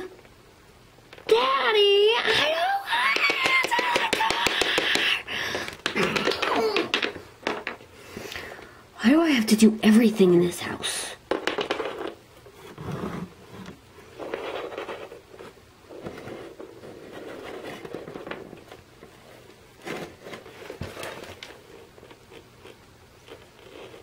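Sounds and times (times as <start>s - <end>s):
toy figures knocking: 2.4s - 7.8s, 11.3s - 12.2s
plastic toys scraping on wood: 11.6s - 21.9s.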